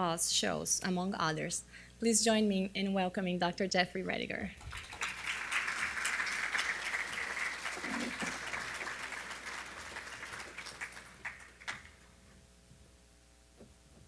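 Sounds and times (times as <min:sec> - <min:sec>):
audience applauding: 0:04.6 - 0:12.0.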